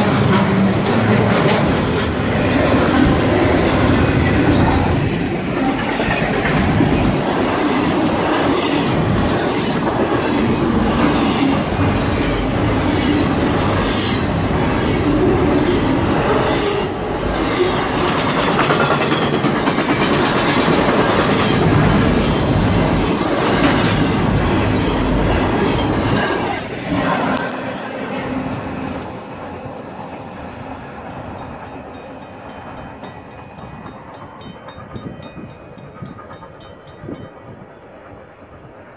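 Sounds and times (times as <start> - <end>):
freight train rumbling past: 0.0 - 38.9
wheels clacking over rail joints: 18.0 - 26.6, 31.0 - 37.6.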